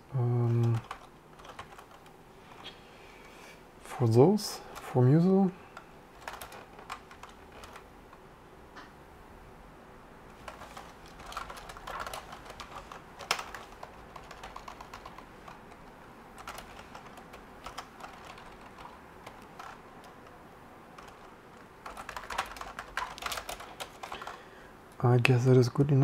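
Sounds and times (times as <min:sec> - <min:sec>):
keyboard typing clicks: 0:05.7 - 0:07.8, 0:10.4 - 0:20.2, 0:21.0 - 0:24.4.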